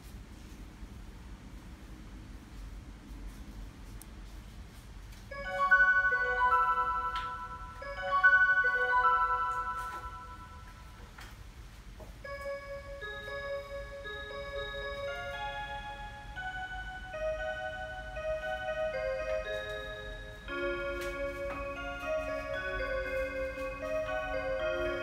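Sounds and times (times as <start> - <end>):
bell-like clock chime: 5.3 - 11.0, 12.2 - 25.0
quiet clock melody: 5.3 - 11.3, 12.2 - 25.0.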